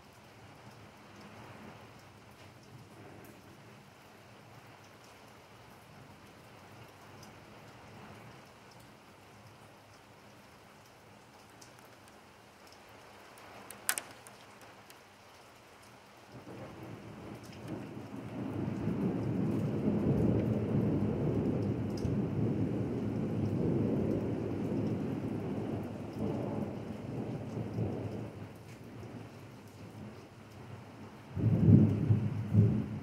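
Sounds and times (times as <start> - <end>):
rain on pavement and roofs: 0.0 - 33.0
sharp click: 13.6 - 15.0
thunder rumble: 16.3 - 29.4, 31.2 - 33.0.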